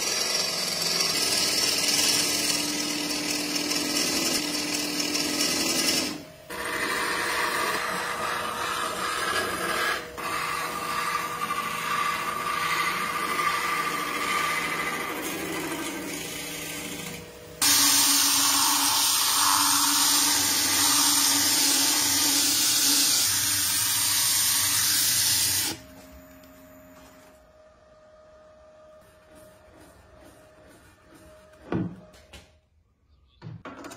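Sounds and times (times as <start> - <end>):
gouge scraping spinning wood: 0.0 - 25.8
lathe motor hum: 0.0 - 25.8.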